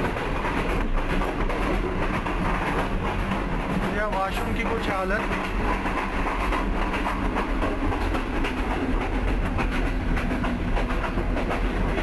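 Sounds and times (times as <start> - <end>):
train coach rumble on track: 0.0 - 12.0.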